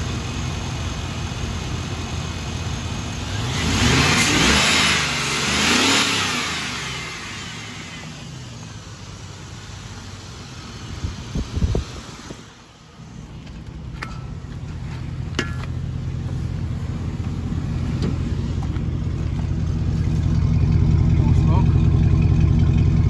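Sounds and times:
car engine idling: 0:00.0 - 0:23.0
thumps: 0:13.4 - 0:16.5.

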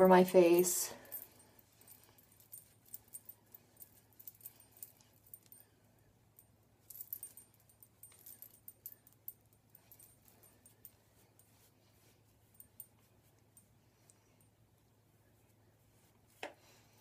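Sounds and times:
cloth wiping ticks and rustles: 0:09.9 - 0:17.0.

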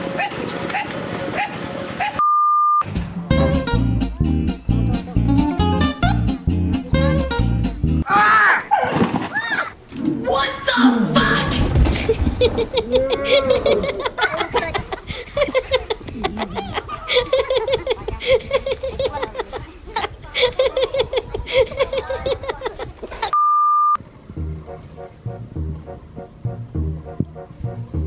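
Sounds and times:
music: 0:02.8 - 0:08.0, 0:24.4 - 0:28.0
person laughing: 0:12.0 - 0:23.3.

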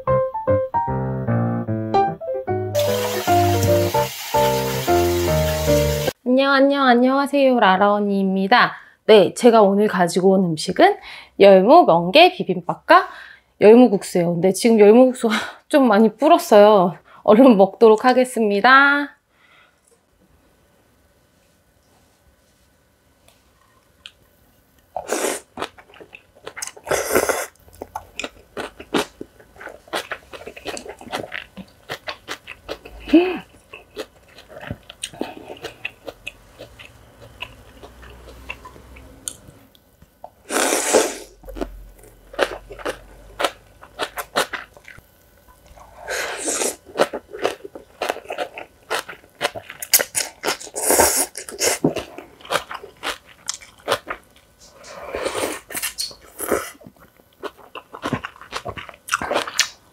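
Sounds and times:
crunchy chewing: 0:25.0 - 0:39.4, 0:41.4 - 0:59.8.

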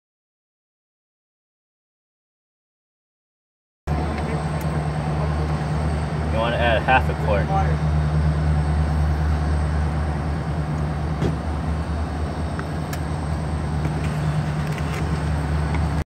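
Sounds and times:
engine humming: 0:03.9 - 0:16.0.

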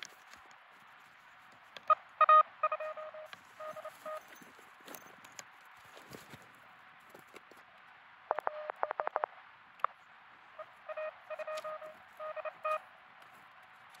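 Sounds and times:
radio band noise hiss: 0:00.0 - 0:14.0
morse code beeps: 0:01.9 - 0:04.4, 0:08.3 - 0:09.3, 0:10.6 - 0:12.8.

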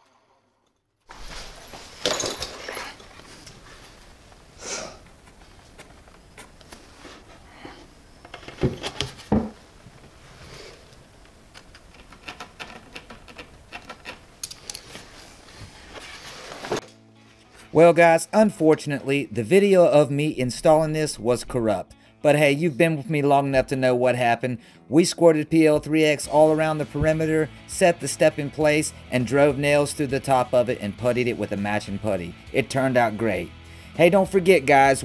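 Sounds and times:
wood scraping and rubbing: 0:11.5 - 0:16.8.

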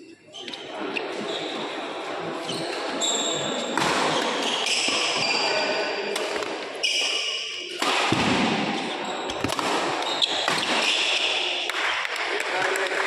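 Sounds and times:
shoes squeaking on court: 0:00.3 - 0:01.8, 0:02.4 - 0:07.4
racket striking shuttlecock: 0:07.7 - 0:11.8.

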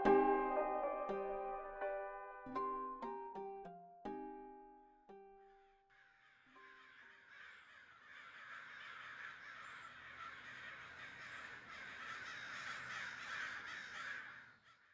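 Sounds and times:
music: 0:00.0 - 0:05.8
dense bird chorus: 0:06.1 - 0:14.8.

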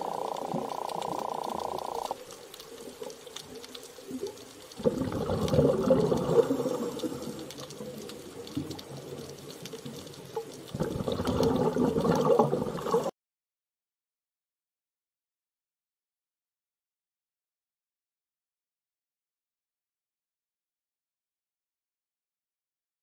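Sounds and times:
underwater bubbling: 0:00.0 - 0:13.1.

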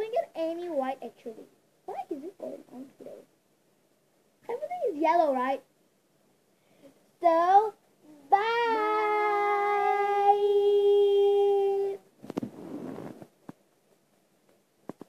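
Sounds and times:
child singing long note: 0:08.4 - 0:12.0
hand rustling on microphone: 0:12.2 - 0:13.6.

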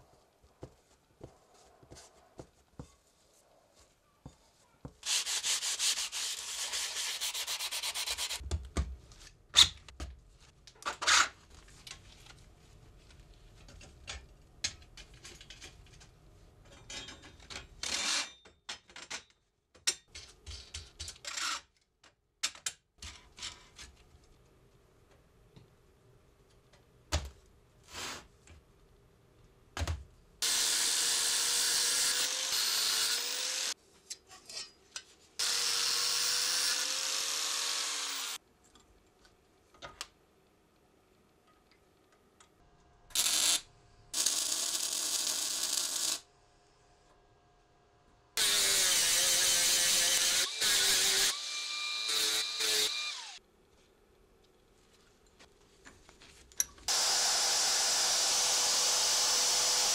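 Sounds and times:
handheld power tool running: 0:30.4 - 0:33.8, 0:35.4 - 0:38.4, 0:48.4 - 0:53.4, 0:56.9 - 0:59.9.

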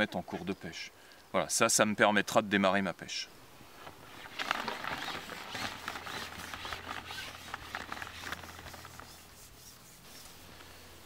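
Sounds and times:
fishing pole clicking on roller: 0:04.2 - 0:09.3.

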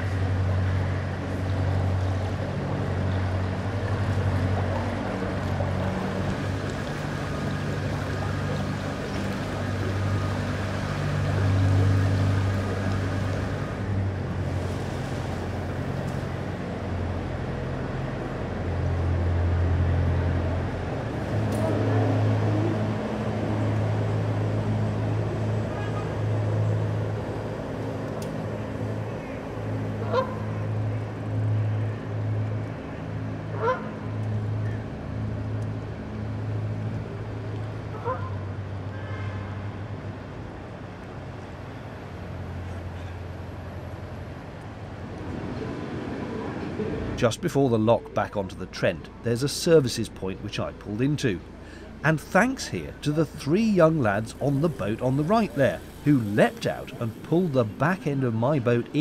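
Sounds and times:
boat engine running: 0:00.0 - 0:59.0
goose honking: 0:30.0 - 0:30.5, 0:33.5 - 0:33.9, 0:37.9 - 0:38.4.

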